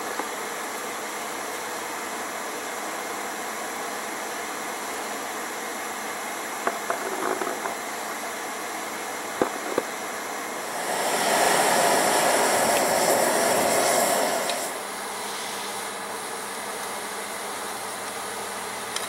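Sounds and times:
air rushing: 10.6 - 14.8
forge fire roaring: 10.6 - 14.8.

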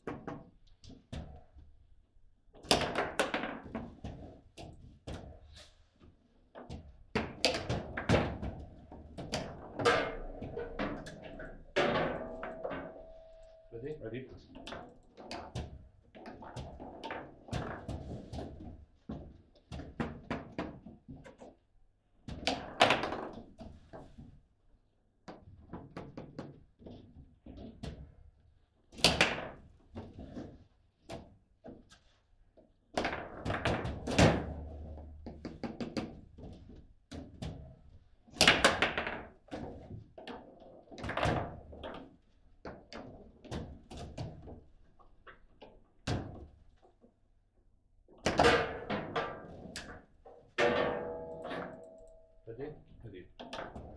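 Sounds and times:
foosball knocks and clacks: 2.6 - 5.4, 6.6 - 13.6, 14.5 - 21.4, 22.3 - 24.0, 38.3 - 46.5, 48.2 - 52.1.

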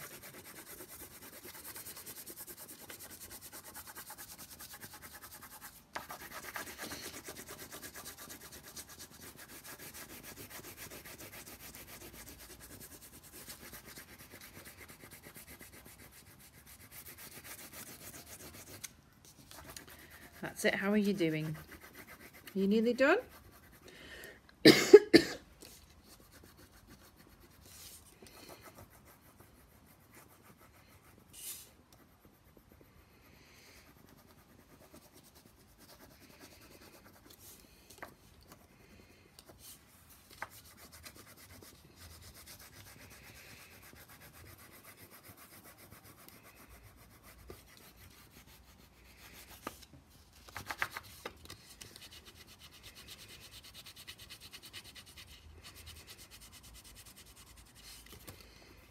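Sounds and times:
crayon scratching on paper plate: 19.5 - 23.8
person coughing: 24.6 - 25.5.

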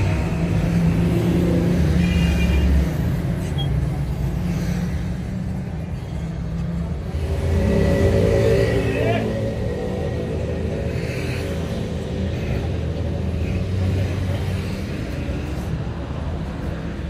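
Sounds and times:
low engine rumble: 5.1 - 15.9.

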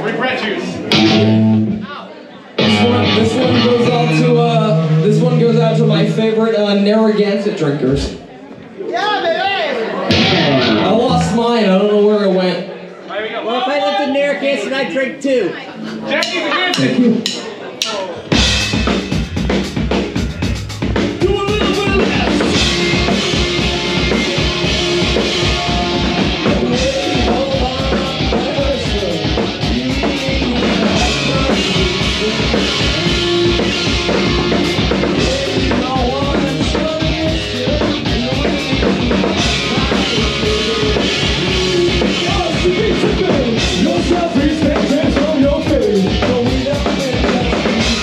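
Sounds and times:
drums: 0.0 - 8.8, 10.0 - 12.0, 15.8 - 48.0
electric guitars and bass: 0.7 - 1.9, 2.6 - 6.6, 10.0 - 11.7, 18.4 - 48.0.

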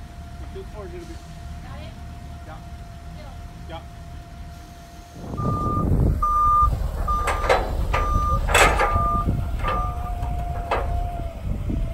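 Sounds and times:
low engine rumble: 0.0 - 11.9
forklift reversing alarm beeping: 4.6 - 11.9
metal clanks and rattles: 6.2 - 11.4.

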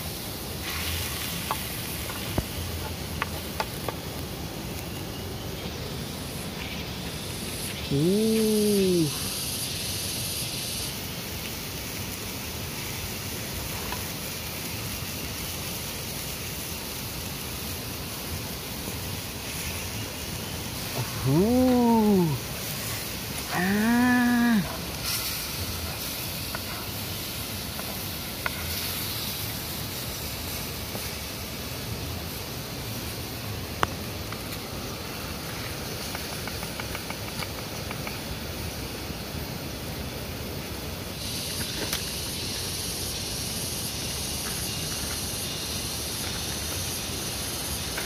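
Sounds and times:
sauce sizzling in a pan: 0.0 - 48.0
small ticks: 35.4 - 38.4.

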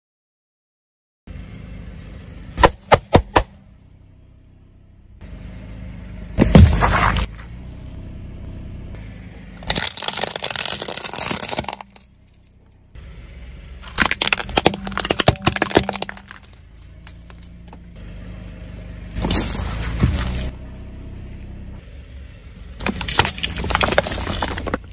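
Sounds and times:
car rumble: 1.3 - 24.9
tyre crushing objects: 6.4 - 7.5, 9.6 - 12.0, 13.8 - 17.5, 19.1 - 20.5, 22.8 - 24.9
sharp cracks: 9.6 - 12.4, 13.9 - 17.5.

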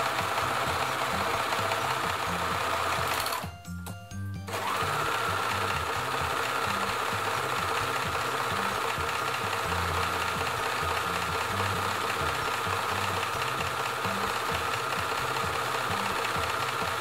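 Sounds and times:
overlocker stitching fabric: 0.0 - 3.4, 4.5 - 17.0.

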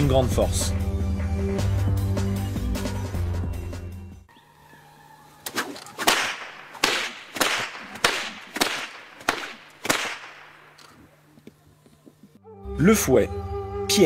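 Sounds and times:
whip swishing and cracking: 5.4 - 10.6.

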